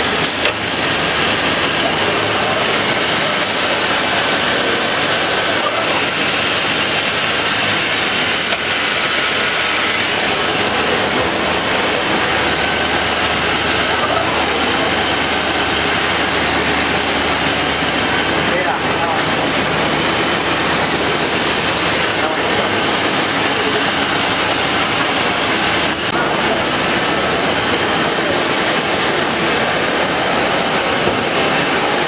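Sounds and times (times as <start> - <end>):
drilling machine running: 0.0 - 32.0.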